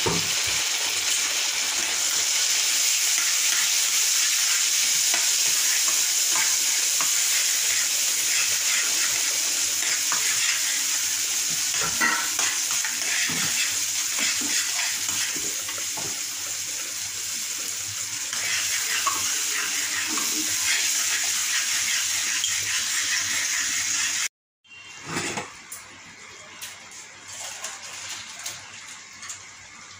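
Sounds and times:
sauce sizzling in a frying pan: 0:00.0 - 0:24.3
metal spatula scraping a pan: 0:03.2 - 0:11.0.

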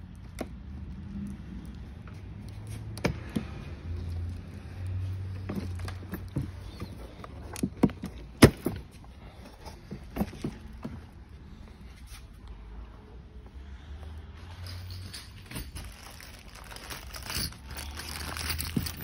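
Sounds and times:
plastic and metal parts knocking: 0:05.5 - 0:08.9.

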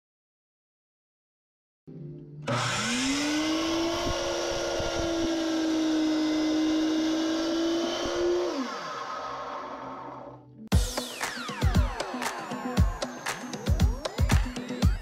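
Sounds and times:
miter saw motor whine: 0:02.5 - 0:10.4.

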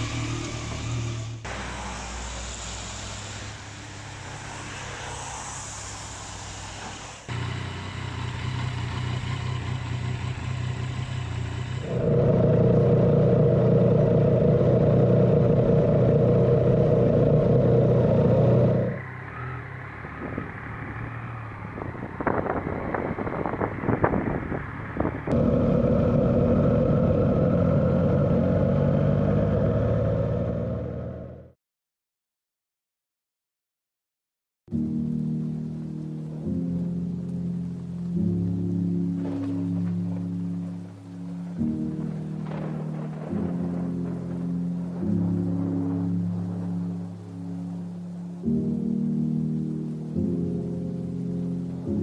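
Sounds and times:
motorcycle engine running: 0:07.3 - 0:31.5.

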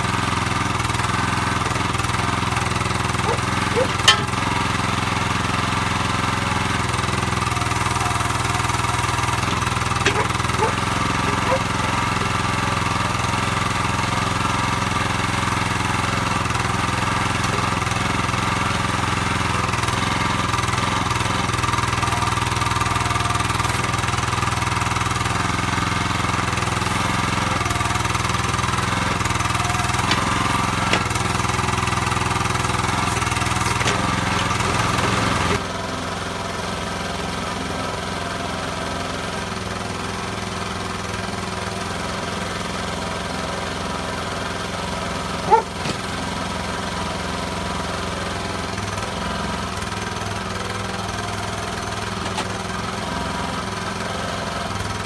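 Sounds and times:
backhoe digging: 0:00.0 - 0:38.0, 0:39.0 - 0:55.0
small petrol engine running: 0:00.0 - 0:55.0.

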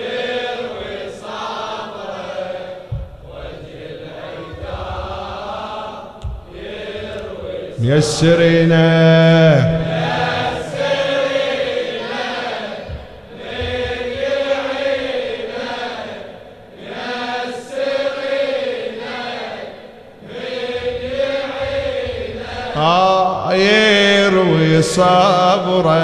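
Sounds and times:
male voices chanting: 0:00.0 - 0:26.0
man reciting: 0:07.6 - 0:11.1, 0:22.4 - 0:26.0.

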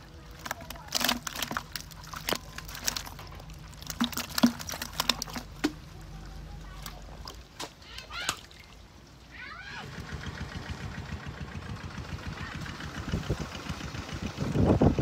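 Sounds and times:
motorbike engine idling: 0:09.8 - 0:15.0.

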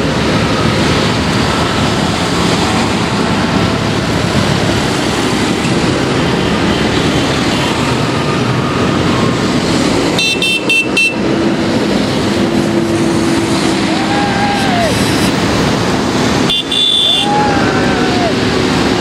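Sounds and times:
diesel engines running: 0:00.0 - 0:19.0
vehicle horn toots: 0:10.2 - 0:11.2, 0:16.5 - 0:17.4.

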